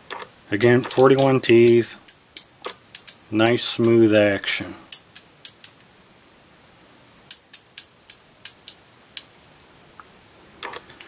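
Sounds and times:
ratchet clicking: 0.6 - 4.0, 4.9 - 5.9, 7.3 - 9.3.

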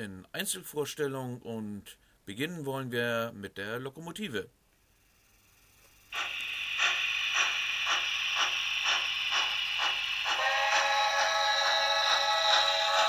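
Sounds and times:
model steam locomotive chuffing: 6.1 - 13.0.

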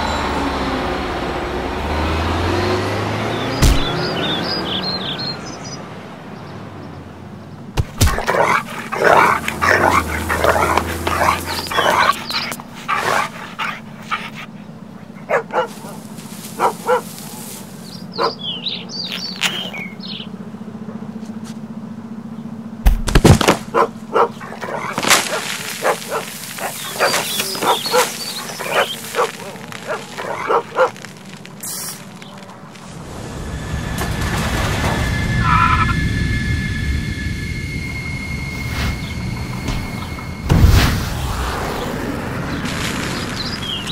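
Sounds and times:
loud crash: 32.9 - 43.9.

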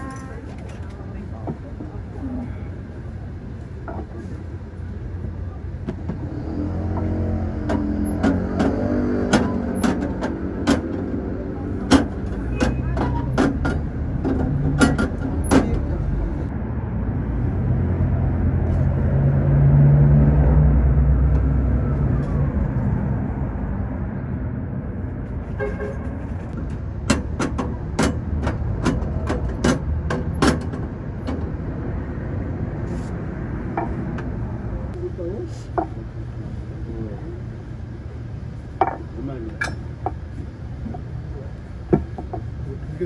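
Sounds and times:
heavy vehicle engine rumbling past: 4.2 - 39.4
sharp clicks and knocks: 25.9 - 31.6.

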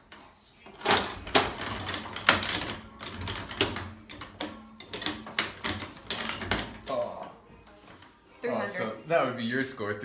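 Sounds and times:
table game clacks: 0.8 - 7.1.

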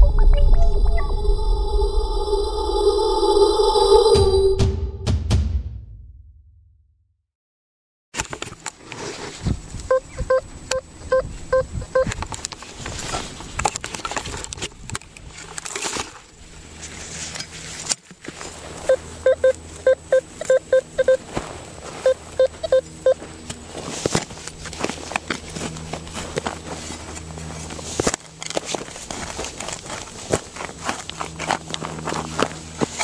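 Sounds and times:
metal detector beeps: 9.9 - 12.2, 18.9 - 21.2, 22.0 - 23.2
rustling and knocks in grass: 12.3 - 18.9, 21.2 - 22.4, 23.2 - 33.0.

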